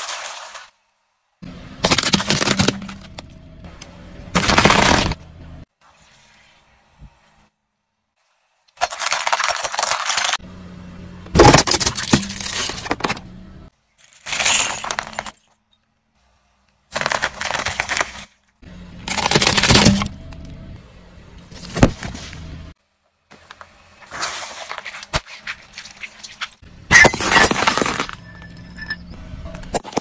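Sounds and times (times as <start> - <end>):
tyre crushing objects: 1.8 - 3.3, 4.3 - 5.2, 19.0 - 20.3.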